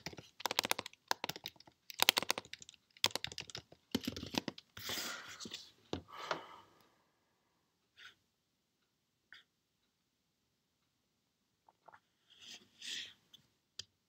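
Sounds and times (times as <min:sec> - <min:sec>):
typing on computer keyboard: 0:00.0 - 0:04.7.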